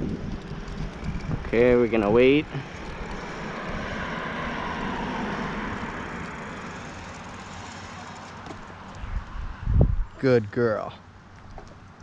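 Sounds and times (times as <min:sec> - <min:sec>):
car passing by: 0:00.6 - 0:09.7.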